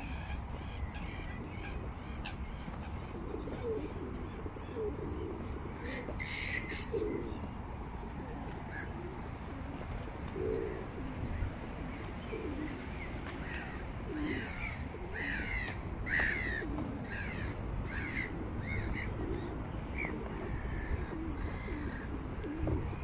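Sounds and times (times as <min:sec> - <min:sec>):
pigeons cooing: 0:00.0 - 0:23.0.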